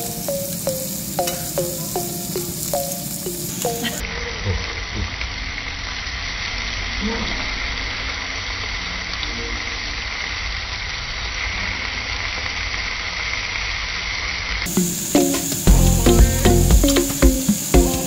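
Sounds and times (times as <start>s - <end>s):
musical jingle of falling notes: 0.0s - 4.0s, 14.7s - 18.0s
pork sizzling on grill plate: 0.0s - 4.0s, 4.6s - 18.0s.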